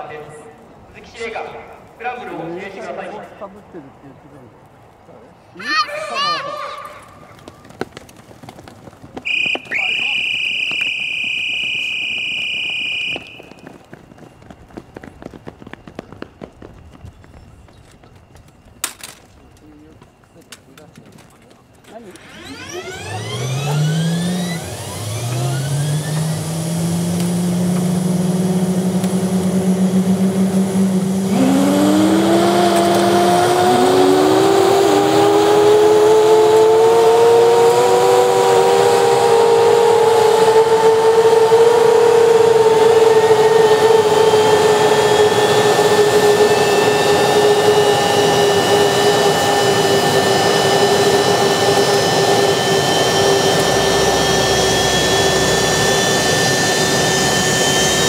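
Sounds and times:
jet engine whine: 0:00.0 - 0:03.9, 0:09.1 - 0:58.0
rush of jet noise: 0:22.1 - 0:58.0.

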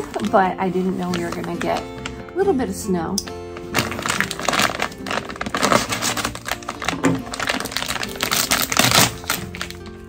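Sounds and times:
plastic bag crinkling: 0:00.0 - 0:02.3, 0:03.5 - 0:10.0.

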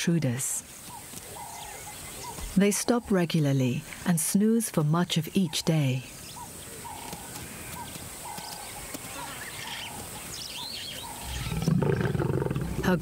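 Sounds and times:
higher bird chirping: 0:00.6 - 0:13.0
bird calling repeatedly: 0:00.8 - 0:03.6, 0:05.0 - 0:11.7
lioness growling: 0:10.6 - 0:13.0.

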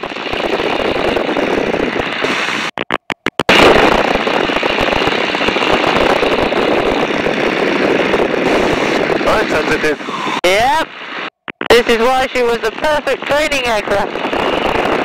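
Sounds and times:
plane engine drone: 0:00.0 - 0:15.0
slipstream over microphone: 0:00.0 - 0:15.0.

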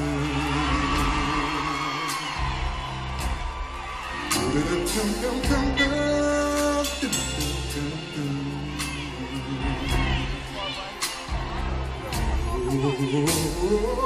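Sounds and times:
man singing long notes: 0:00.0 - 0:02.8, 0:04.4 - 0:11.0, 0:12.4 - 0:14.0
live band playing: 0:00.0 - 0:14.0
bass guitar: 0:02.3 - 0:14.0.

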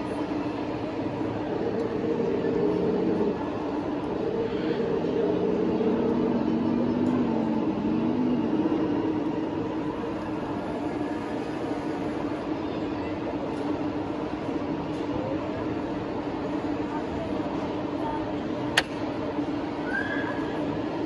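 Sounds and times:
model tank mechanical drone: 0:00.0 - 0:13.4
crowd chatter: 0:00.0 - 0:21.0.

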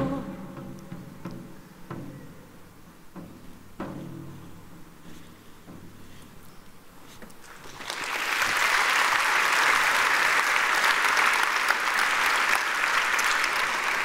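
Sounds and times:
large audience applauding: 0:07.4 - 0:14.0.

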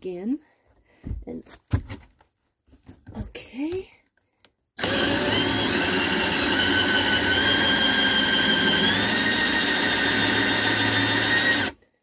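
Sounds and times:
cordless drill whine: 0:04.8 - 0:11.8.

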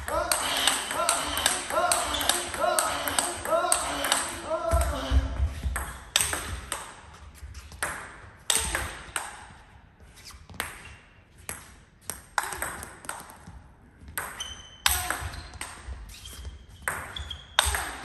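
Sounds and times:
ping-pong ball clicking: 0:12.1 - 0:13.3.

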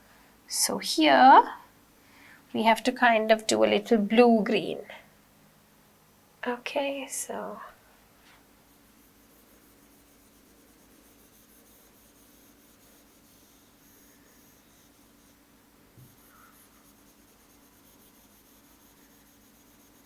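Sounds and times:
stylus scratching on screen: 0:08.7 - 0:20.0.

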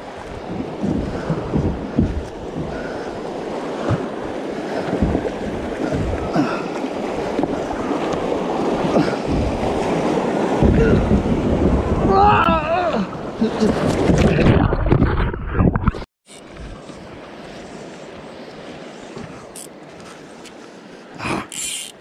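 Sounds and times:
creek water rushing: 0:00.0 - 0:12.0
wind buffeting microphone: 0:00.0 - 0:19.5.

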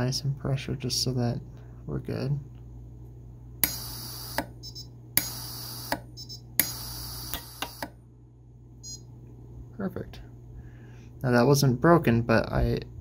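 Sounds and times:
welder snapping and hissing: 0:03.6 - 0:04.6, 0:05.2 - 0:08.0.

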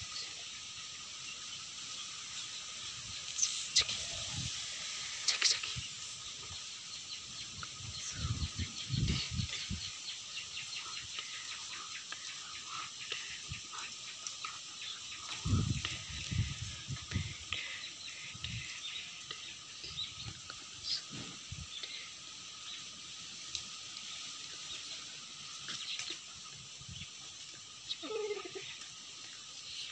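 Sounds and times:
faint bird chirps: 0:00.0 - 0:23.1
insects buzzing: 0:00.0 - 0:29.9
steady outdoor hiss: 0:00.0 - 0:29.9.

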